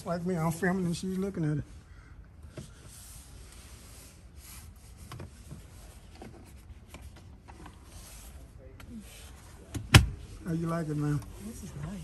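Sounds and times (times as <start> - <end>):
rustling and rubbing in car seat: 2.5 - 12.0.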